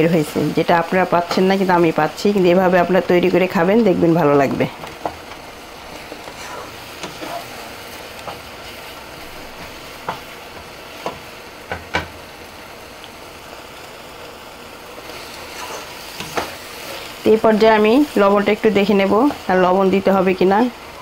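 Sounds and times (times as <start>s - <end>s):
fish roe sizzling in oil: 0.0s - 21.0s
wooden spatula scraping pan: 5.9s - 10.4s, 15.1s - 18.2s.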